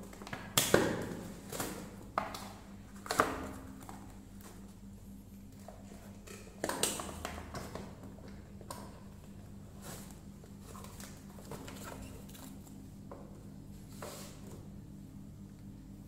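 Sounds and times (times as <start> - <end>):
cardboard and plastic packaging handled: 9.8 - 12.8.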